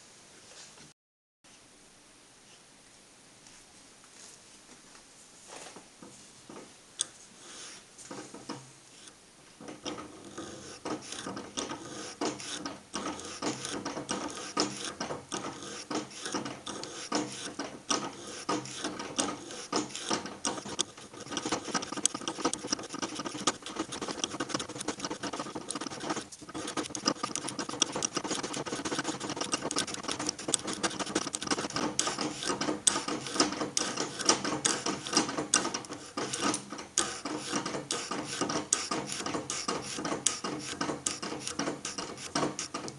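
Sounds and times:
faint spindle whine: 0:06.0 - 0:42.9
milling cutter crackling rattle: 0:09.6 - 0:42.9.

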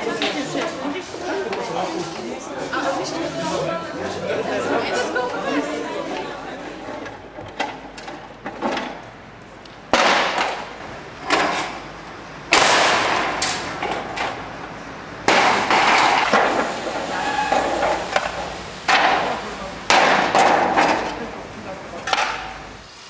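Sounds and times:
loud crashes of falling metal: 0:09.9 - 0:11.8, 0:12.5 - 0:14.4, 0:15.2 - 0:18.3, 0:18.9 - 0:21.3.

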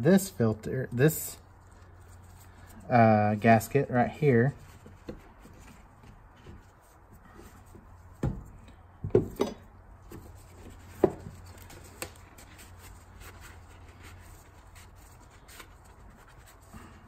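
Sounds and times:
gloved hands rubbing: 0:01.1 - 0:03.7, 0:10.2 - 0:17.0.

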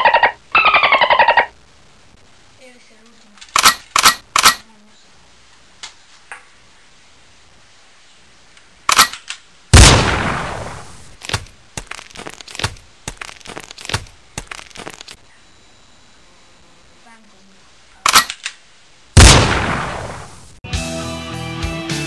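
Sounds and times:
loud blast: 0:09.8 - 0:11.0, 0:19.2 - 0:20.5
gunshots: 0:09.8 - 0:11.4, 0:19.2 - 0:20.5.

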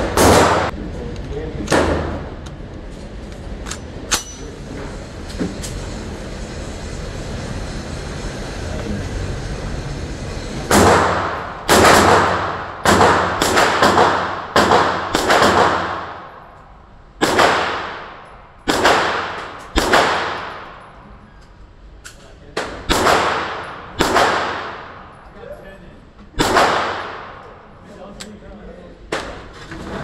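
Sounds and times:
pistol shots echoing indoors: 0:00.0 - 0:00.7, 0:10.7 - 0:16.6, 0:17.2 - 0:20.9, 0:22.6 - 0:25.2, 0:26.4 - 0:27.6.

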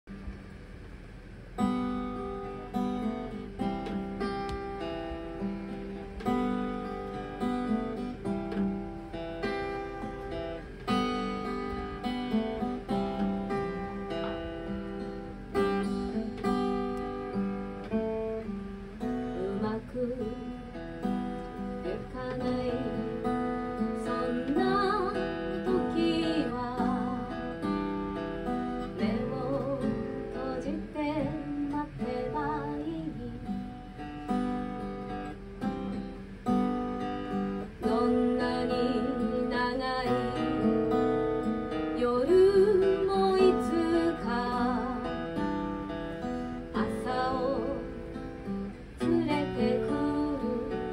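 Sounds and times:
acoustic guitar strummed: 0:00.4 - 0:50.9
woman singing: 0:19.0 - 0:20.8, 0:21.5 - 0:27.9, 0:28.7 - 0:33.7, 0:37.6 - 0:45.4, 0:46.6 - 0:50.9.

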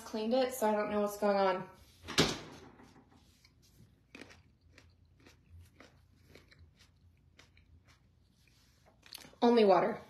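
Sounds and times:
faint chewing: 0:03.2 - 0:09.4.

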